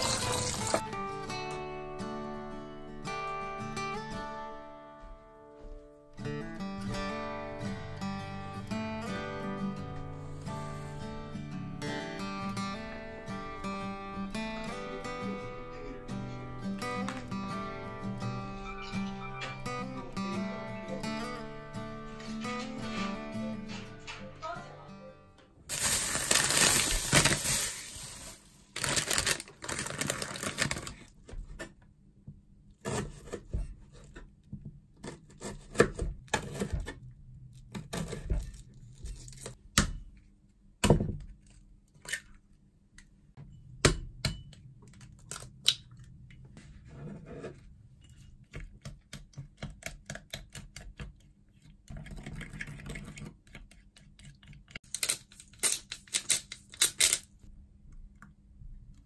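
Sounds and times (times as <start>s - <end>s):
plastic bag crinkling: 0.0s - 0.8s, 25.7s - 31.1s.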